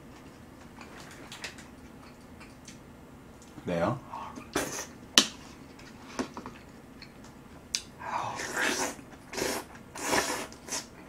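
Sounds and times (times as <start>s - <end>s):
mouth eating noodles: 4.4s - 5.0s, 8.0s - 11.0s.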